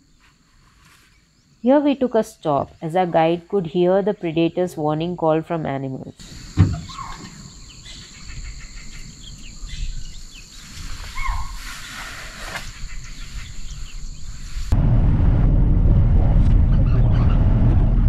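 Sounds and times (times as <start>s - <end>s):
high insect drone: 0.0s - 14.8s
bird-like calls: 6.2s - 14.5s
low rumble: 14.7s - 18.0s.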